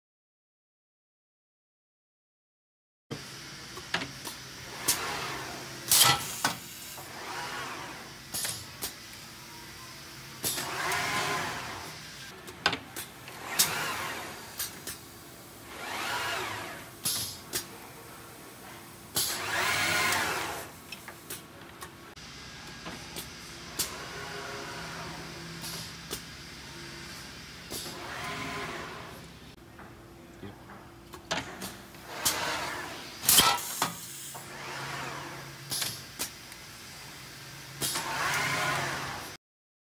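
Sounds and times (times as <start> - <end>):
motor whining up and down: 13.3 - 14.4, 15.7 - 16.9, 19.3 - 20.7, 27.8 - 29.3.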